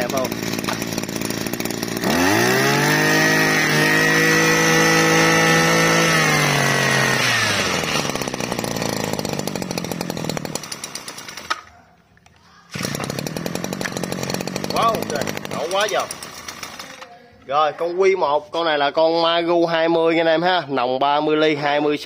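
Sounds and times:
brush cutter engine revving: 0.0s - 11.7s, 12.7s - 17.1s.

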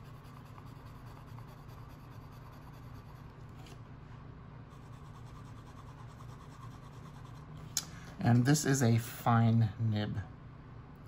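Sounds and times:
pen scratching on paper: 0.0s - 3.2s
low steady hum: 0.0s - 11.0s.

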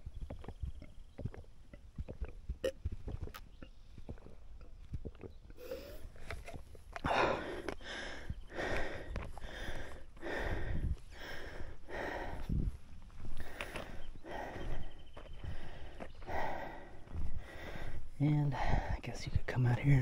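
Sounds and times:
heavy breathing: 5.6s - 19.0s
footsteps on rock and gravel: 6.2s - 19.5s.

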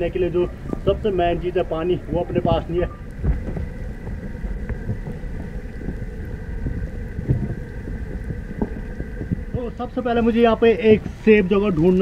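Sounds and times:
wind rumbling on microphone: 0.0s - 12.0s
microphone handling knocks: 2.4s - 5.2s, 6.6s - 9.7s.

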